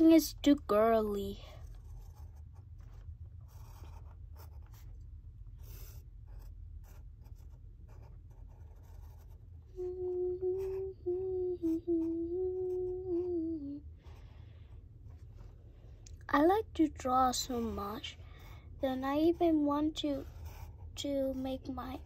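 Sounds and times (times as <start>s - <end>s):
pen scratching on paper: 1.6s - 5.0s, 5.6s - 9.5s, 17.4s - 22.0s
child humming a tune: 9.7s - 13.8s.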